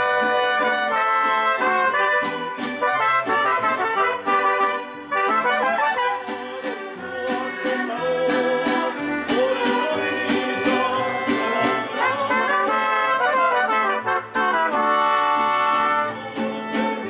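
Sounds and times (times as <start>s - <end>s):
live band with trumpets: 0.0s - 6.7s, 10.8s - 17.0s.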